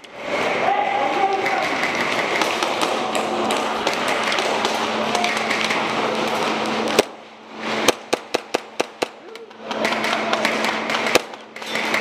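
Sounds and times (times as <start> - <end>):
airsoft pistol shots: 7.8 - 9.2.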